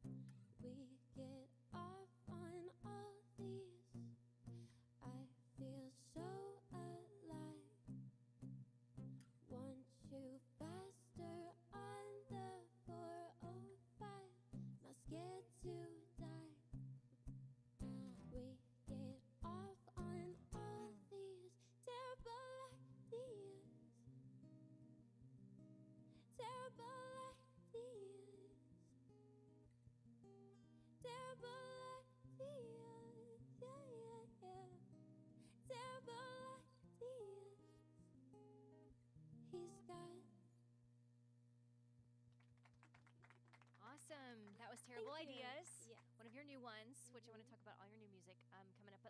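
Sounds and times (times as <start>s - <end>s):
acoustic guitar: 0.0s - 40.7s, 43.8s - 49.0s
woman singing: 0.5s - 4.0s, 5.0s - 7.8s, 9.5s - 16.7s, 17.8s - 24.0s, 26.3s - 28.7s, 31.0s - 37.9s, 39.5s - 40.4s.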